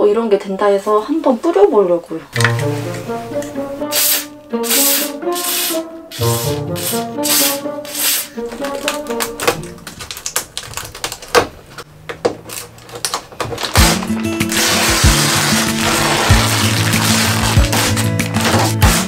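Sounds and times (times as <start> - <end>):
background music: 2.4 - 10.0, 13.7 - 19.0
aerosol can spraying: 3.8 - 8.4, 14.5 - 18.1.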